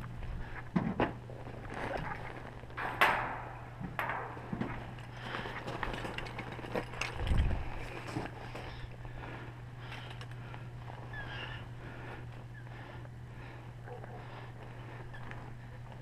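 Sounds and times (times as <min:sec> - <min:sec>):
steady low hum: 0:00.0 - 0:16.0
rope and gear handled on gravel: 0:00.6 - 0:02.8, 0:04.6 - 0:09.2.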